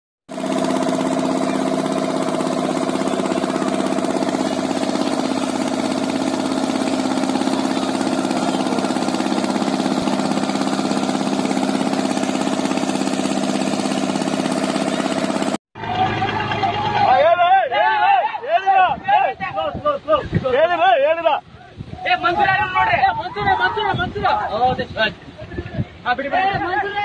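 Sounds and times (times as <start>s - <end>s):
boat engine running: 0.3s - 17.7s.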